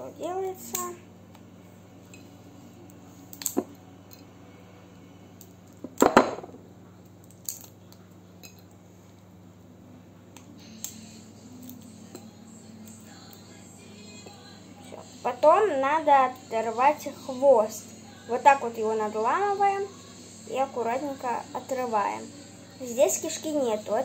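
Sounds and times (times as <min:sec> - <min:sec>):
crayfish shell cracking: 0:03.3 - 0:03.6, 0:07.0 - 0:08.6.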